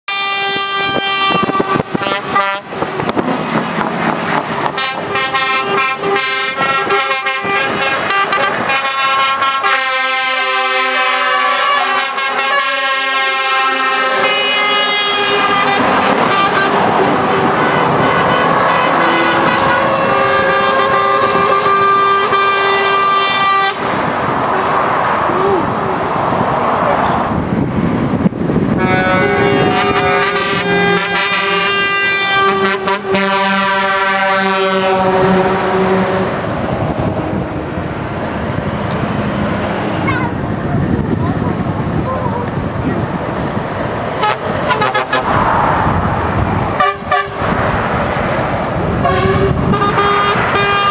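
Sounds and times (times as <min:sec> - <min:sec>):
truck horns: 0:00.1 - 0:25.7, 0:28.6 - 0:40.4, 0:44.1 - 0:47.9, 0:48.9 - 0:50.9
lorry engines and tyres: 0:00.1 - 0:50.9.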